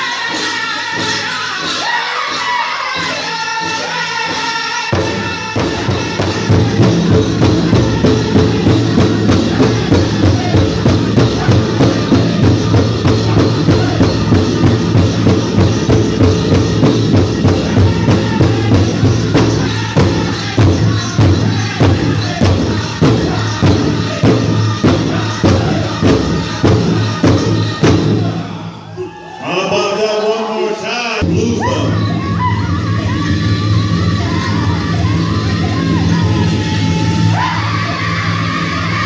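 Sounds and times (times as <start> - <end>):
group singing: 0.0 - 39.0
big drum beaten steadily: 4.9 - 28.6.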